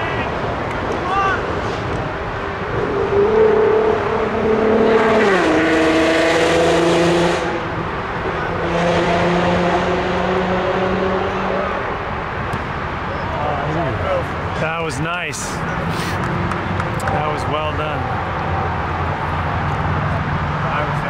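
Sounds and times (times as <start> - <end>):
vehicle driving past: 2.5 - 12.0.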